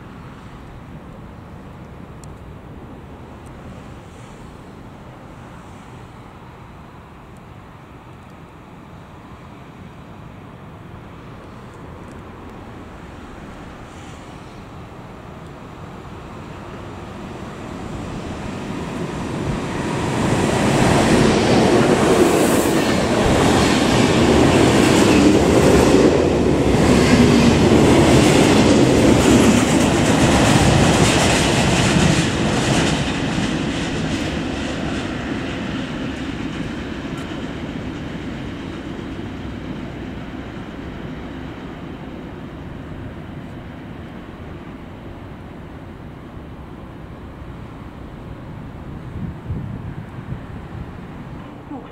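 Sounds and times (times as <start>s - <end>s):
freight train rumbling past: 8.9s - 51.9s.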